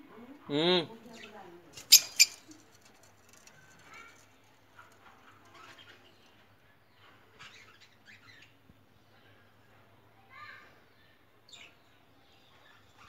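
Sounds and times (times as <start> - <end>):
lovebirds chirping: 1.0 - 9.5.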